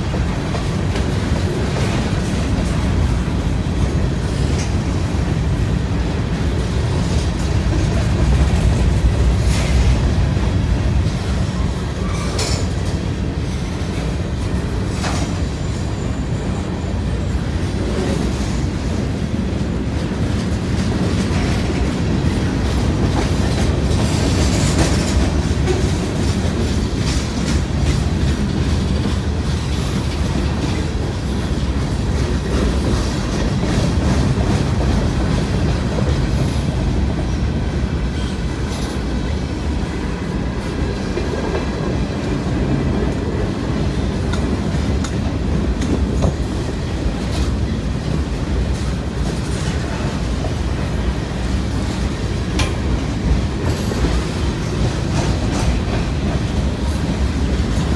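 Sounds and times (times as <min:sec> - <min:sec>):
freight train rumbling past: 0:00.0 - 0:57.9
wheels clacking over rail joints: 0:17.6 - 0:57.9.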